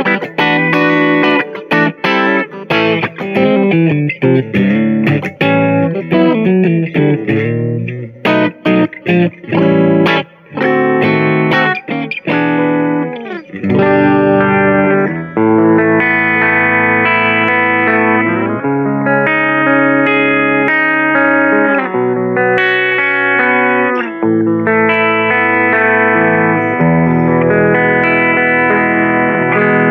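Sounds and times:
electric guitar playing: 0:00.0 - 0:29.9.

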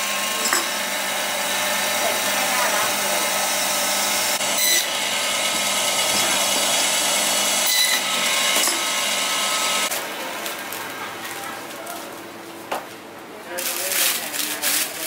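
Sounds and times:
band saw cutting meat: 0:00.0 - 0:10.7.

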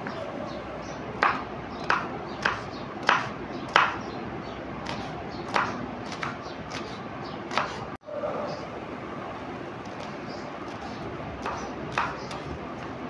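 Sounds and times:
knife chopping on wooden board: 0:01.2 - 0:04.0, 0:04.8 - 0:07.9, 0:10.7 - 0:12.9.

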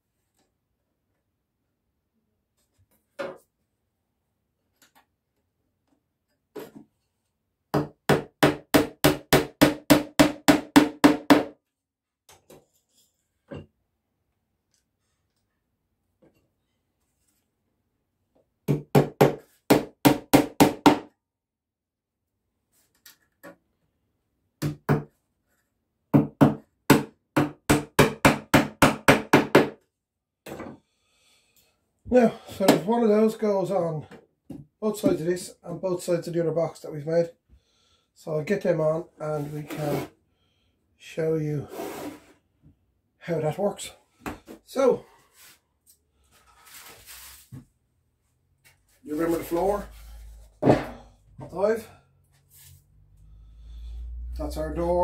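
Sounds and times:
hammer striking nails: 0:07.7 - 0:11.6, 0:18.6 - 0:21.2, 0:24.6 - 0:25.1, 0:26.1 - 0:29.8.

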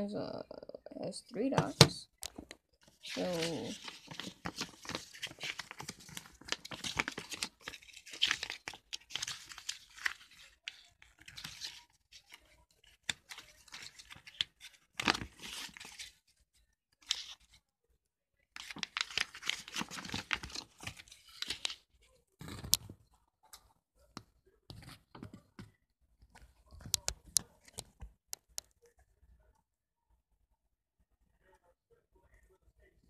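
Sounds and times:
paper leaflets rustling: 0:01.6 - 0:16.3, 0:17.0 - 0:17.6, 0:18.6 - 0:21.8.

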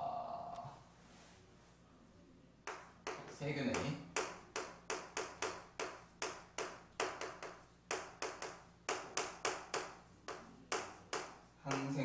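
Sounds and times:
chalk tapping and scratching on chalkboard: 0:02.6 - 0:12.0.

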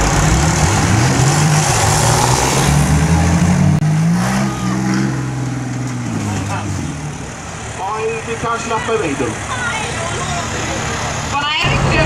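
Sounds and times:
tractor engines revving: 0:00.0 - 0:12.0.

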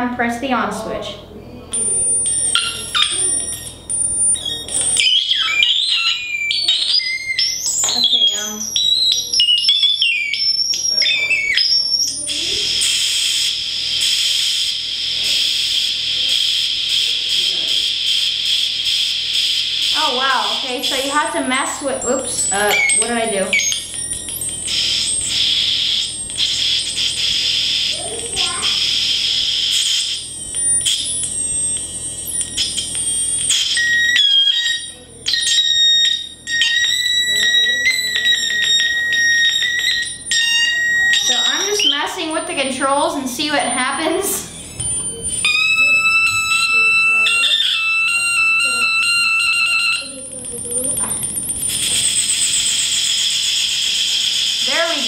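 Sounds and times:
electronic whistle tone: 0:01.7 - 0:42.6, 0:43.8 - 0:55.0.

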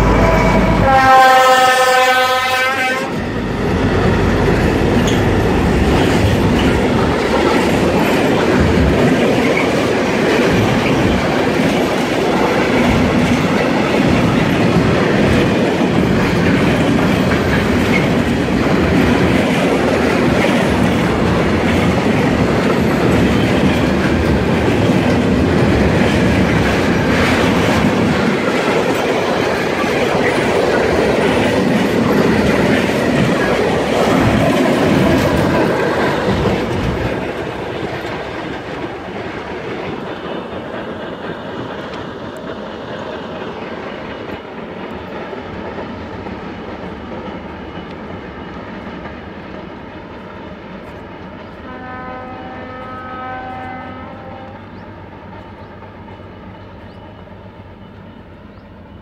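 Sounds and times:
train horn blast: 0:00.0 - 0:03.4, 0:51.6 - 0:54.9
train wheels on rails: 0:00.0 - 0:59.0.

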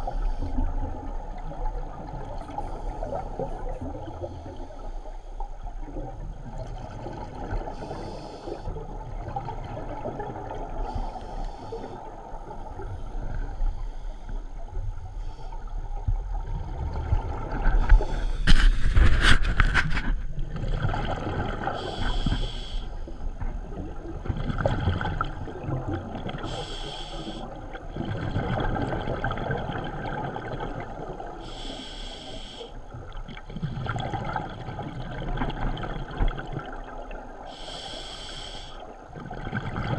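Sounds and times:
exhaled bubbles rumbling: 0:00.0 - 0:04.9, 0:05.5 - 0:22.4, 0:23.1 - 0:31.5, 0:32.9 - 0:37.6, 0:38.8 - 0:39.9
regulator inhale hiss: 0:07.8 - 0:08.7, 0:10.8 - 0:12.1, 0:17.9 - 0:18.8, 0:21.8 - 0:23.2, 0:26.4 - 0:27.5, 0:31.4 - 0:32.8, 0:37.5 - 0:39.0
rushing bubbles: 0:16.2 - 0:22.1, 0:23.6 - 0:26.6, 0:27.5 - 0:31.4, 0:33.0 - 0:37.4, 0:39.0 - 0:39.9.

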